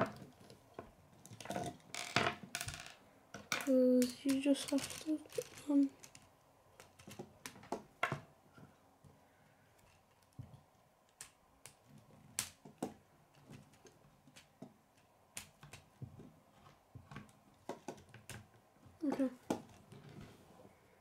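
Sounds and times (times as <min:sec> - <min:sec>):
plastic connectors clicking: 0:03.4 - 0:07.8.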